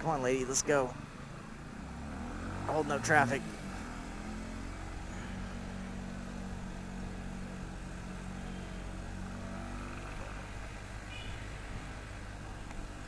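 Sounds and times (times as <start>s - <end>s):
wind and road noise: 0.0s - 13.0s
motorcycle engine cruising: 0.2s - 13.0s.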